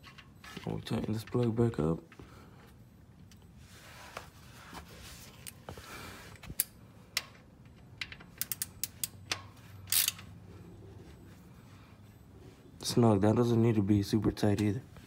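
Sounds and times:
socket ratchet clicking: 0:06.6 - 0:10.2.

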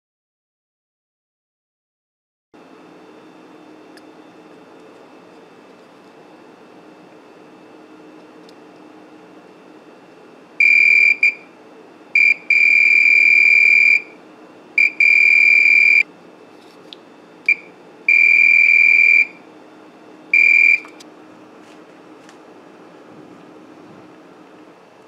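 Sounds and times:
multimeter continuity beeps: 0:10.6 - 0:11.5, 0:12.2 - 0:14.2, 0:14.8 - 0:16.1, 0:17.4 - 0:19.4, 0:20.3 - 0:21.0.

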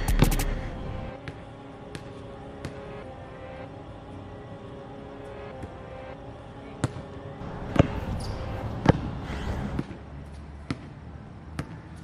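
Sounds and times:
basketball bouncing on hard court: 0:06.8 - 0:09.1.

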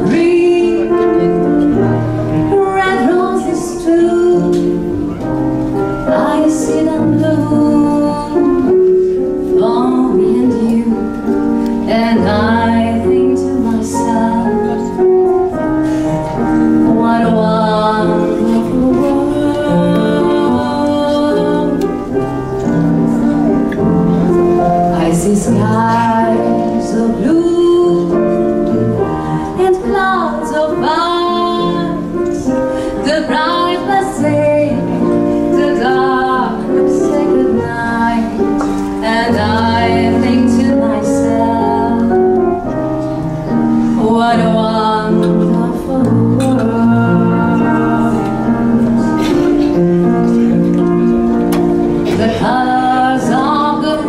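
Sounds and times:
instrumental accompaniment: 0:00.0 - 0:54.0
woman singing into a microphone: 0:00.0 - 0:54.0.

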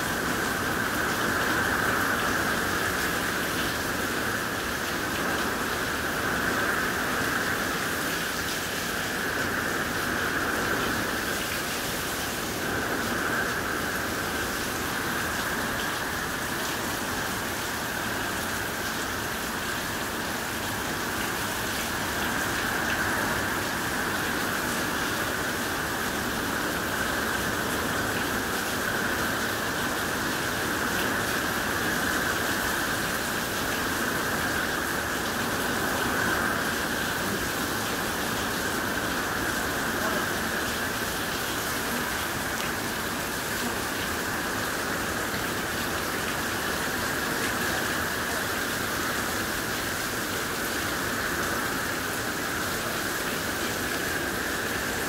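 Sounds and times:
steady pouring rain: 0:00.0 - 0:55.0.

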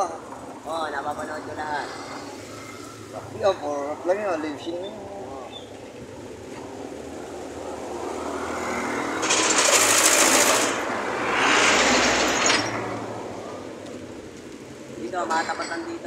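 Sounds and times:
motorcycle passing by: 0:07.0 - 0:13.8.

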